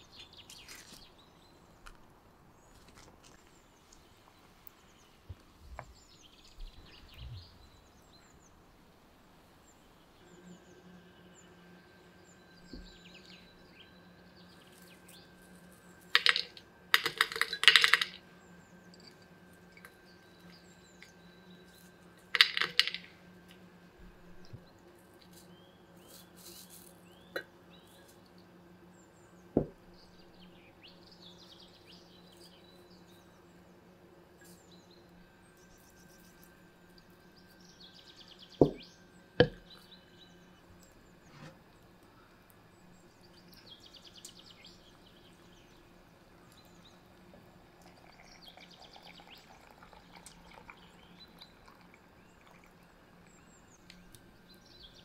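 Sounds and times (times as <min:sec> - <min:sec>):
faint steady hum: 0:00.0 - 0:55.0
dried flowers clinking against glass: 0:16.1 - 0:18.2, 0:21.7 - 0:23.2.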